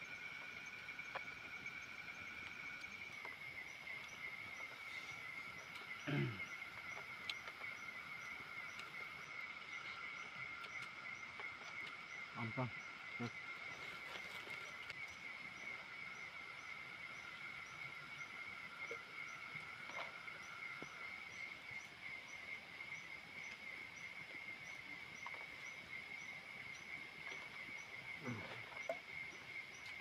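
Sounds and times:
faint insect chirp: 0.0 - 30.0
insect lower trill: 0.0 - 30.0
faint ticks: 2.3 - 12.2.

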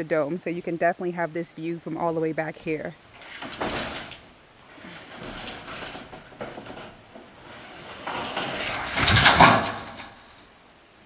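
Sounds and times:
handling noises on roof: 3.1 - 10.4
metal roofing panel scraping rattle: 3.1 - 10.4.

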